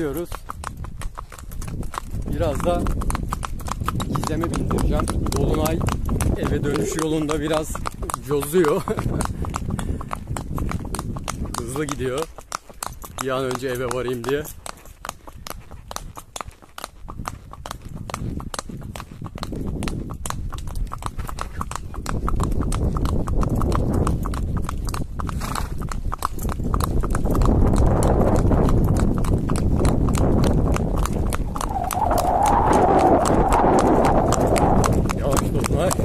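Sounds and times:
horse hooves clip-clopping: 0.0s - 36.0s
low rumble: 30.1s - 35.4s.

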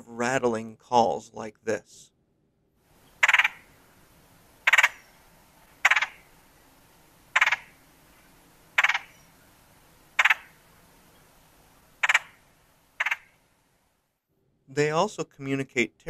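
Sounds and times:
woodpecker rattle call: 3.0s - 3.8s, 4.6s - 6.4s, 7.3s - 7.8s, 8.7s - 9.5s, 10.1s - 11.3s, 12.0s - 13.4s.

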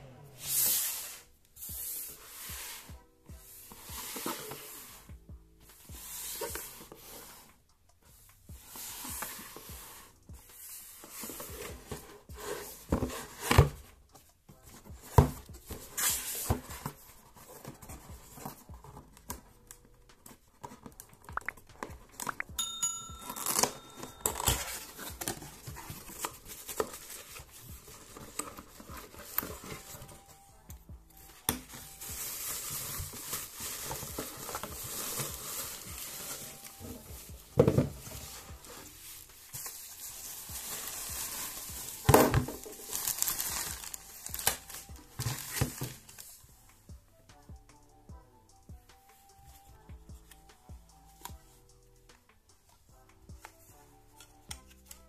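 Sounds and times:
cardboard scraping and knocking: 11.0s - 13.9s, 14.7s - 19.0s, 32.6s - 39.8s, 40.6s - 46.2s
bubble wrap crinkling: 14.6s - 46.5s.

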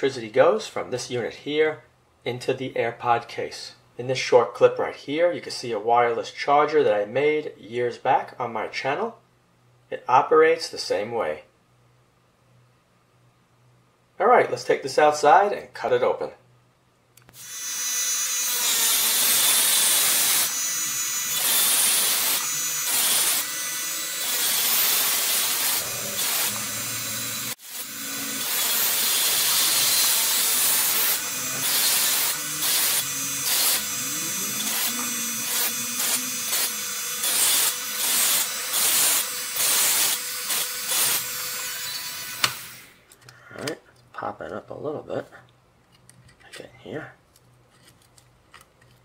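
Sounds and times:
rotary tool grinding plastic: 17.4s - 42.8s
motor whine: 17.4s - 42.9s.

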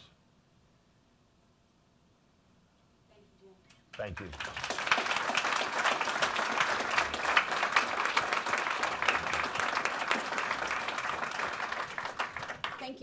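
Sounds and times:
audience applauding: 3.9s - 13.0s.

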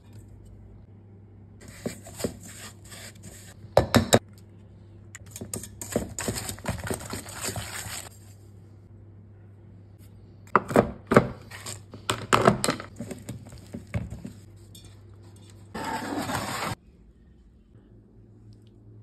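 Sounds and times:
spatula scraping mixing bowl: 13.0s - 16.8s.

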